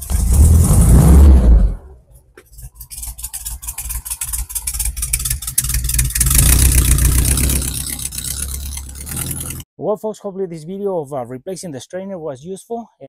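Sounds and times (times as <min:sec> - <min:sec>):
engine idling and revving: 0:00.0 - 0:01.8, 0:02.4 - 0:09.6.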